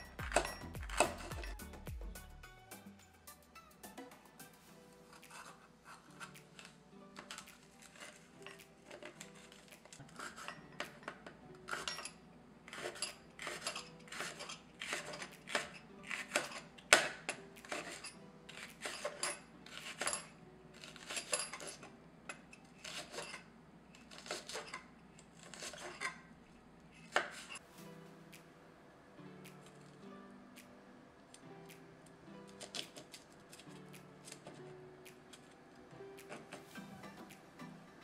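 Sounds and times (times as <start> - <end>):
knife chopping on cutting board: 12.7 - 19.2.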